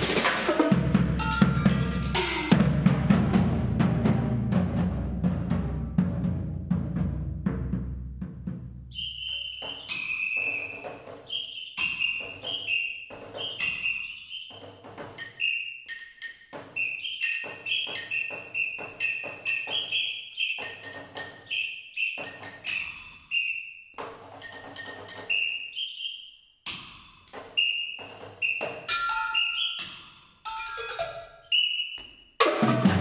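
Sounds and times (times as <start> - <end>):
sharp percussion strokes: 0.0 - 2.8, 9.6 - 21.6, 24.0 - 25.6, 26.7 - 31.5
high whistle notes: 8.9 - 30.2, 31.2 - 32.3.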